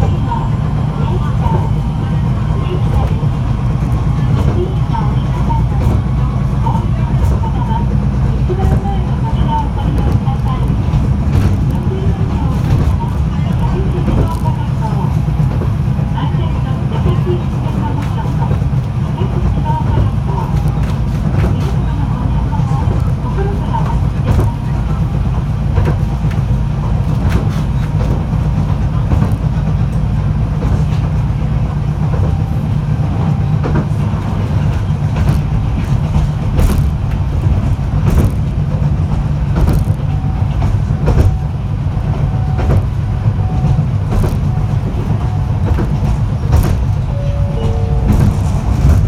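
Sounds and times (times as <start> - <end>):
tram interior rumble: 0.0 - 49.0
wheels clacking on track: 0.0 - 49.0.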